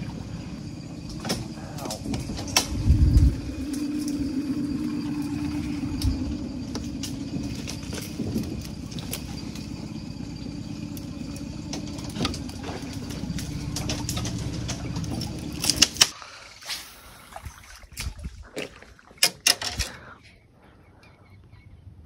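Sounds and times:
electric motor humming: 0:00.0 - 0:16.1.

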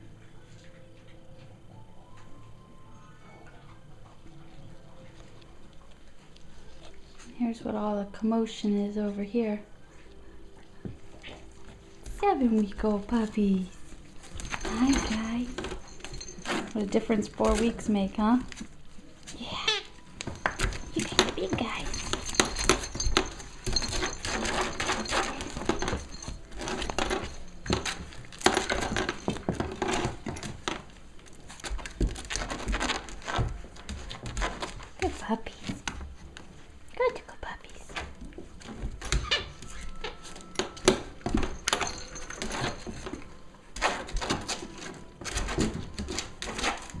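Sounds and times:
puppies scuffling over toys: 0:10.8 - 0:36.9, 0:37.9 - 0:47.0.

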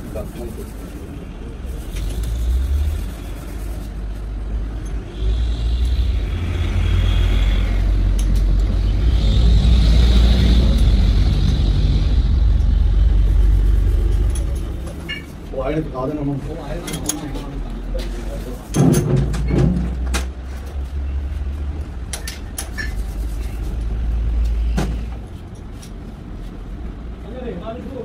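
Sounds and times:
grinding machine low rumble: 0:00.1 - 0:16.0.

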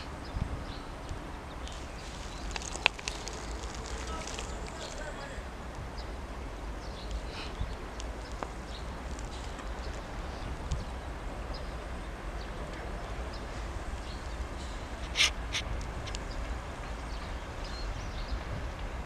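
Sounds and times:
low outdoor rumble: 0:00.0 - 0:19.0
small bird chirps: 0:01.6 - 0:05.2.

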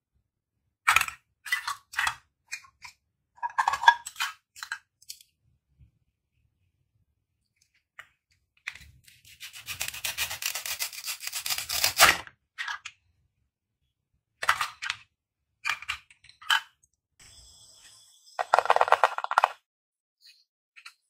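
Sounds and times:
velcro tearing apart: 0:09.4 - 0:12.2.

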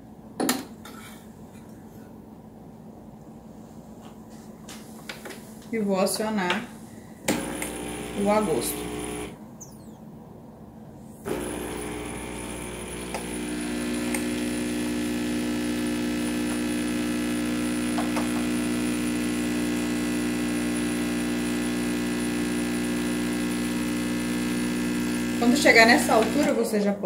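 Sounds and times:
espresso machine pump humming: 0:07.3 - 0:09.4, 0:11.3 - 0:26.6.

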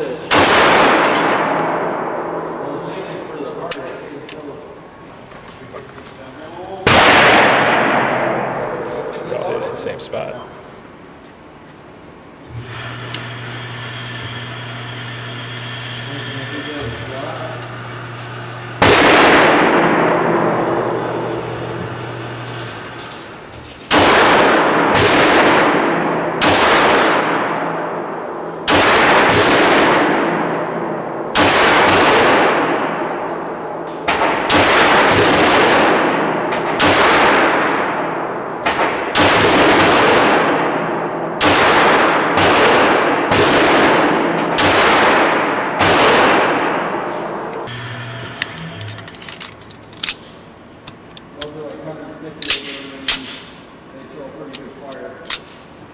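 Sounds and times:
pistol shots echoing indoors: 0:00.0 - 0:02.7, 0:06.8 - 0:09.2, 0:18.3 - 0:22.5, 0:23.9 - 0:47.7, 0:52.4 - 0:53.8.

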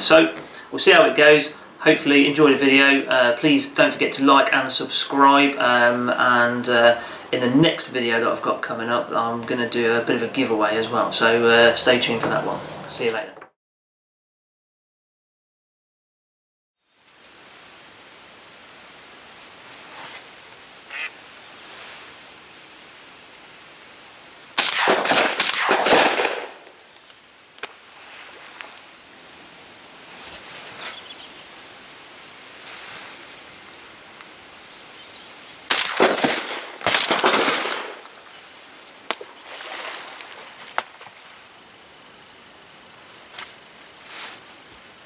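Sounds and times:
ducks quacking: 0:20.9 - 0:21.2
shotgun shots: 0:24.6 - 0:26.7, 0:35.7 - 0:38.1.

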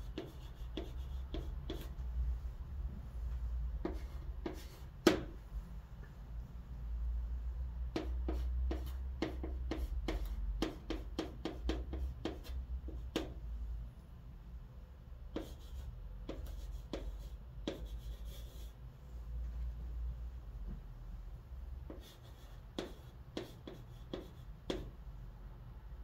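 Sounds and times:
chalk tapping and scraping on board: 0:00.0 - 0:02.0, 0:03.8 - 0:05.4, 0:07.9 - 0:13.4, 0:15.3 - 0:18.8, 0:21.8 - 0:25.0
low steady hum: 0:00.0 - 0:26.0.

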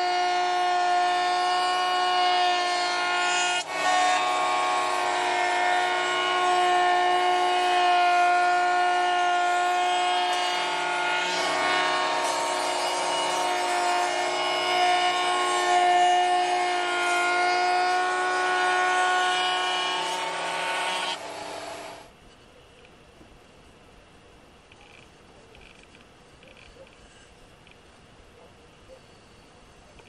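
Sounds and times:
router cutting wood: 0:00.0 - 0:22.1.

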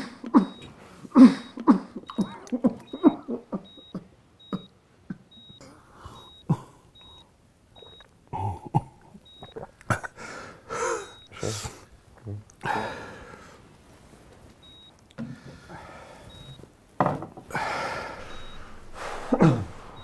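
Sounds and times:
man coughing: 0:00.0 - 0:05.2, 0:19.2 - 0:19.8.

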